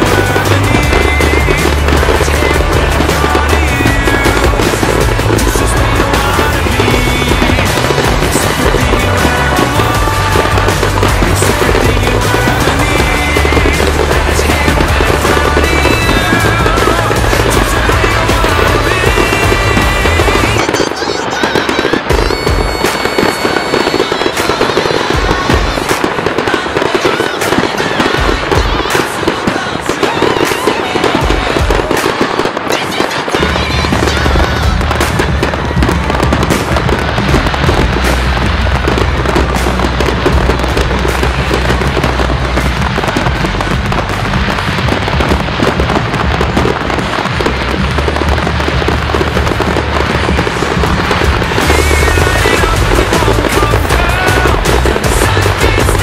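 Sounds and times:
deep bass: 0:00.0 - 0:20.6, 0:33.4 - 0:56.0
fireworks bangs and crackling: 0:00.0 - 0:56.0
music: 0:00.0 - 0:56.0.

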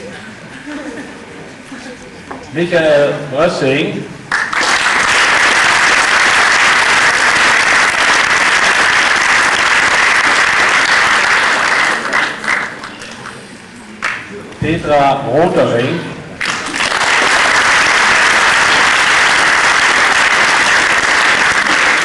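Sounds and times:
audience clapping: 0:04.3 - 0:14.4, 0:16.4 - 0:22.0.

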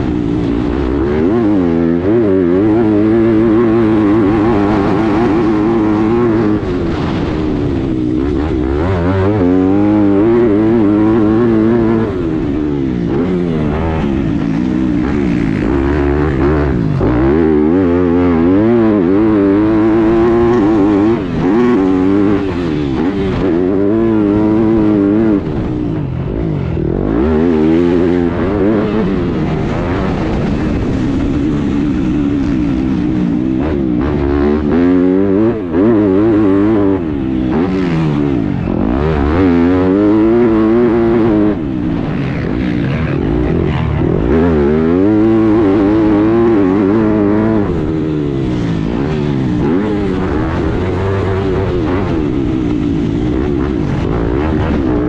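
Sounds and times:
motocross engine revving: 0:00.0 - 0:55.0.

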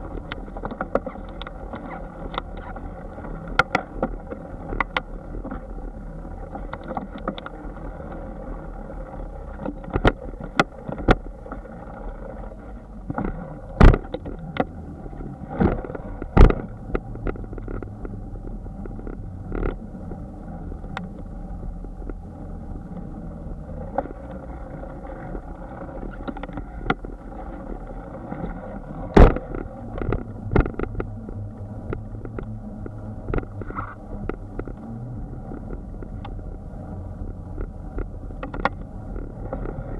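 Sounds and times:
bicycle knocking and rattling: 0:00.0 - 0:05.7, 0:13.1 - 0:14.8, 0:15.6 - 0:19.9, 0:23.8 - 0:39.9
bicycle tyres rumbling: 0:00.0 - 0:39.9
wind: 0:00.0 - 0:39.9.

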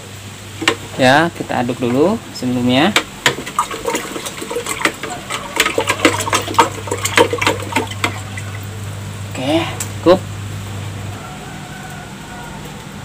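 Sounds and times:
liquid sloshing in watering can: 0:02.9 - 0:08.8.

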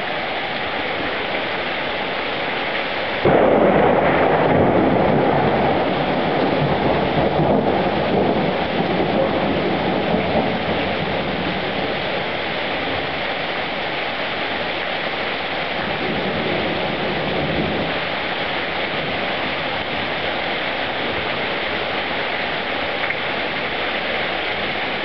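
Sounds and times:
heavy rain pouring on pavement: 0:00.0 - 0:25.0.

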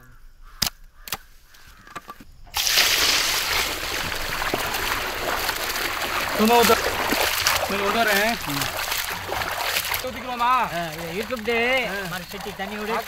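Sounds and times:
hands washing in water: 0:02.6 - 0:13.0
water pouring into metal vessel: 0:02.6 - 0:13.0.

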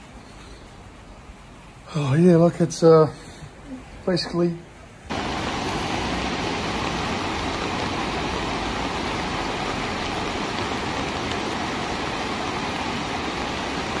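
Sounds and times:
floodwater rushing: 0:05.0 - 0:14.0.

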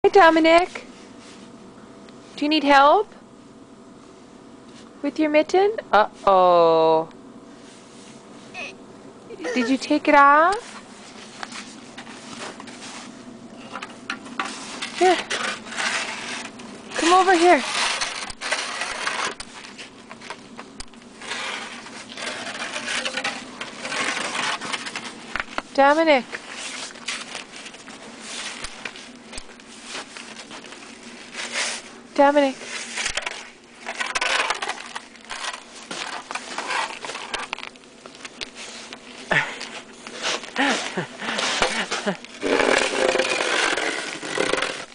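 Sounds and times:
child voice: 0:08.6 - 0:09.9
plastic shovel scraping snow: 0:15.0 - 0:19.4, 0:21.2 - 0:25.0, 0:40.2 - 0:44.9.

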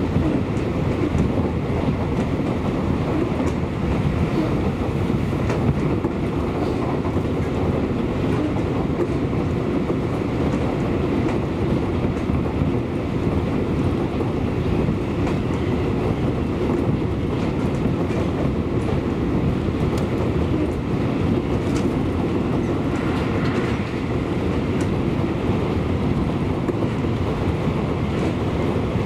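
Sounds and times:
train wheels rumbling on rails: 0:00.0 - 0:29.0
wheels clicking over rail joints: 0:14.8 - 0:25.1.

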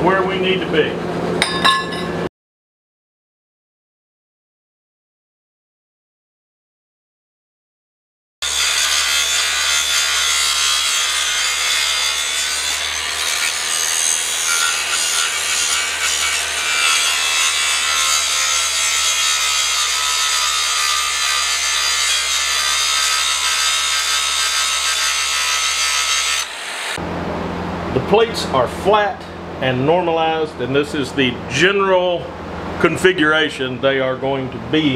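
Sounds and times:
angle grinder grinding steel: 0:08.4 - 0:27.0.

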